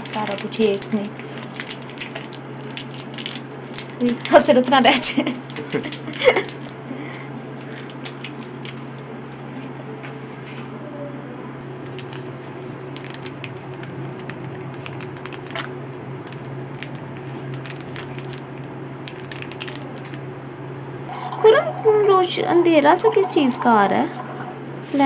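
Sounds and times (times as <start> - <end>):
plastic sachet crinkling: 0.0 - 6.8, 7.6 - 9.0, 11.8 - 20.2
steady low hum: 0.0 - 25.0.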